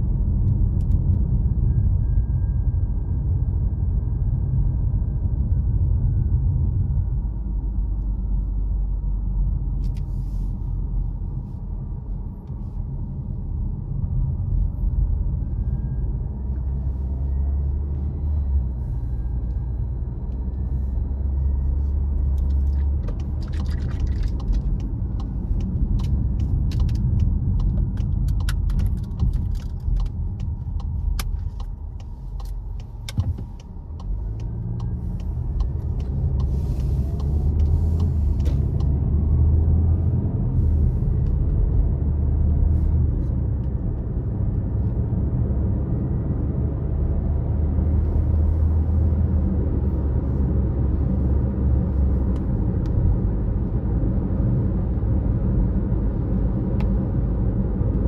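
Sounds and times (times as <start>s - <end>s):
car engine and road rumble: 0.0s - 58.0s
sharp clicks and rattles: 22.4s - 36.5s.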